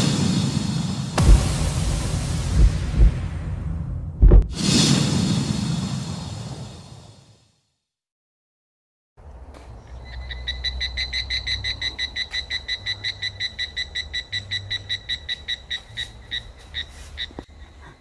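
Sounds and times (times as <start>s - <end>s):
low rumble: 0.0s - 7.0s
frog croaking: 10.1s - 17.6s.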